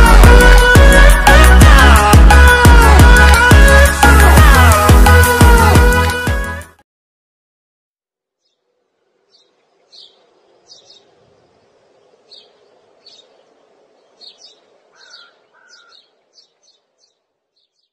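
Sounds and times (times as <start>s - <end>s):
faint outdoor background hiss: 8.2s - 17.9s
birds chirping: 8.4s - 17.9s.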